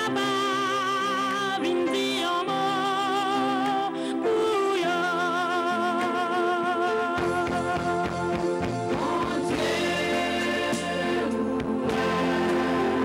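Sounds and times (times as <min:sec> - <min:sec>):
woman singing gospel: 0:00.0 - 0:08.2, 0:08.9 - 0:13.0
drum beats: 0:07.4 - 0:13.0.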